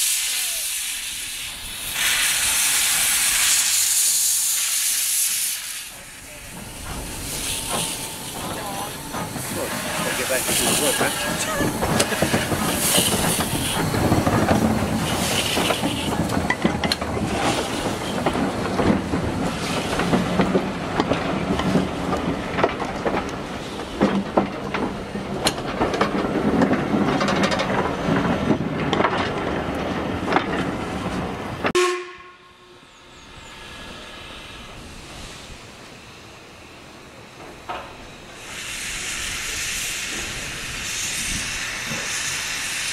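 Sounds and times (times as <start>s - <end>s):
steam hissing: 0.0s - 31.6s, 32.8s - 42.9s
wheels clicking over rail joints: 6.4s - 31.8s.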